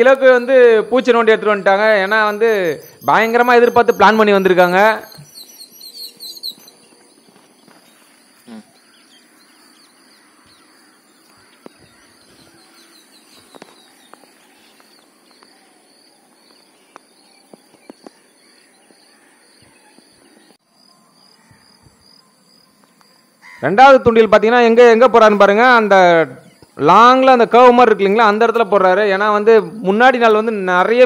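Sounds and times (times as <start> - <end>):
outdoor background hiss: 0.0 - 31.0
small bird chirping: 1.5 - 20.6.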